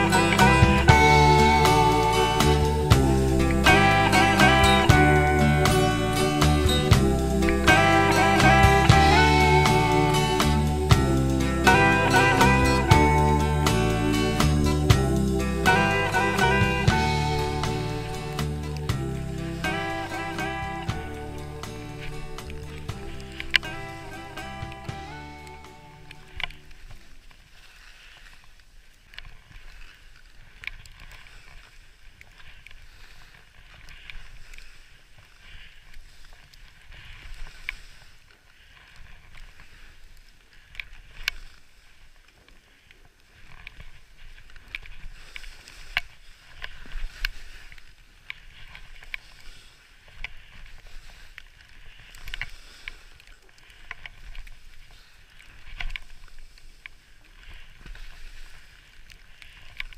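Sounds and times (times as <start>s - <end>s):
low rumble: 0.0s - 26.9s
skis swishing through snow: 0.0s - 59.9s.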